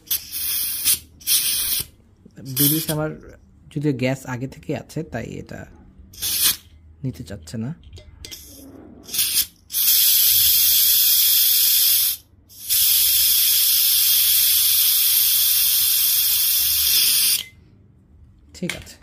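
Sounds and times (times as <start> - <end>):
gas hissing from can nozzle: 0.0 - 1.9, 2.6 - 3.0, 6.2 - 6.6, 8.3 - 17.5.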